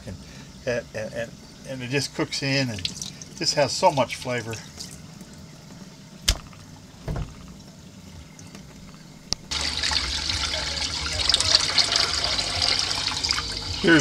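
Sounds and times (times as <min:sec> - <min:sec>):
water trickling into sink: 0:00.5 - 0:14.0.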